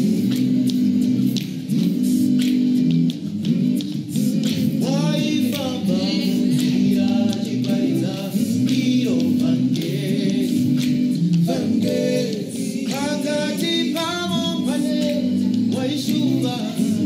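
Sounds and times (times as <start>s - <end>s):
male group singing a cappella: 4.1s - 17.0s.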